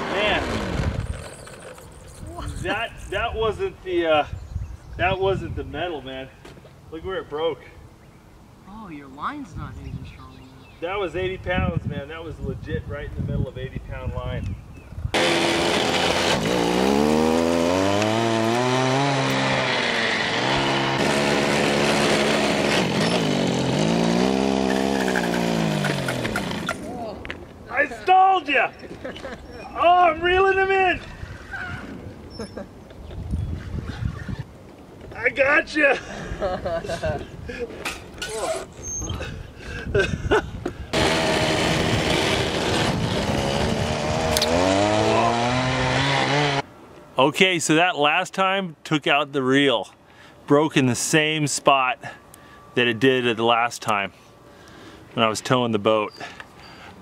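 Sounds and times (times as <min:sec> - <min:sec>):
go-kart engine revving: 0:00.0 - 0:02.0, 0:15.2 - 0:26.9, 0:40.9 - 0:46.6.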